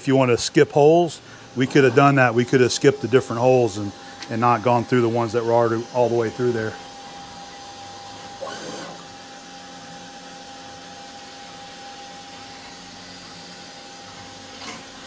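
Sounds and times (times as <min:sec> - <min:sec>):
mill drilling through steel: 0:00.6 - 0:15.0.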